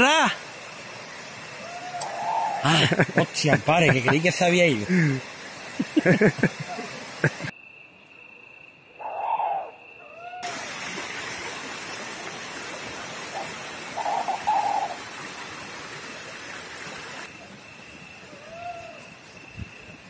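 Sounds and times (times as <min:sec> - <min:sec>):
owl hooting: 0:01.6 - 0:02.7, 0:09.0 - 0:10.5, 0:13.3 - 0:15.0, 0:18.3 - 0:19.1
rising-and-falling bird call: 0:01.6 - 0:02.8, 0:09.0 - 0:10.6, 0:13.3 - 0:15.0, 0:18.3 - 0:19.1
high insect trill: 0:07.5 - 0:10.4, 0:17.2 - 0:20.0.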